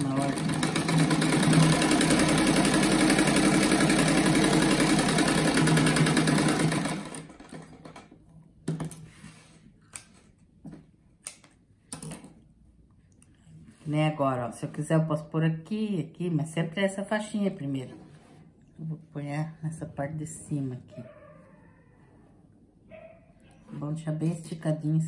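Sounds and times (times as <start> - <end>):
sewing machine stitching: 0.0 - 8.1.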